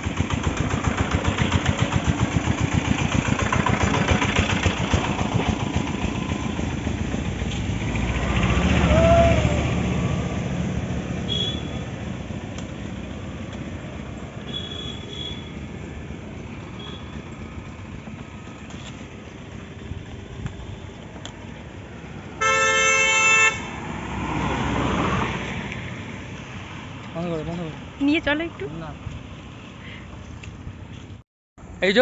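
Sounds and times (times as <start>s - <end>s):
vehicle passing: 0.0s - 30.1s
vehicle horn honking: 11.2s - 12.0s, 14.4s - 15.6s, 16.8s - 17.2s, 22.4s - 23.7s.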